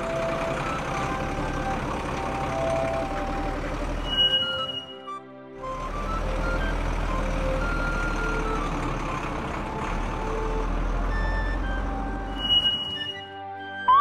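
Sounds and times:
truck engine rumble: 0.0s - 14.0s.

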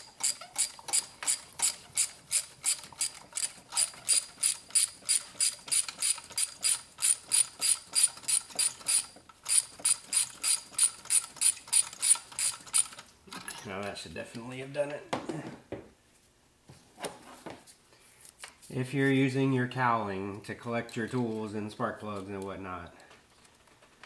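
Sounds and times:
hand ratchet clicking: 0.0s - 13.0s.

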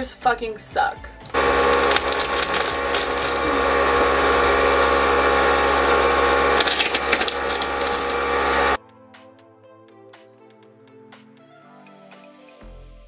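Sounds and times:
wood cracking and splintering: 1.3s - 3.5s, 4.5s - 8.8s
pneumatic tool running: 1.3s - 8.8s.

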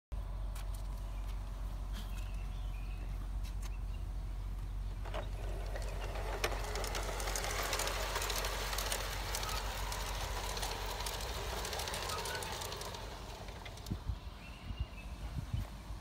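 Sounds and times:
wheels clicking over rails: 4.6s - 14.6s
model train motor whirring: 5.0s - 14.2s.

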